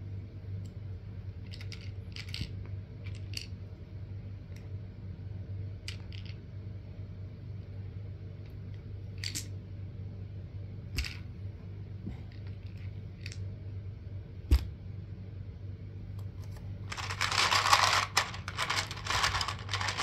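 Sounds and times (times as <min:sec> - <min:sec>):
steady low hum: 0:00.0 - 0:20.0
plastic dice clicking: 0:16.9 - 0:20.0.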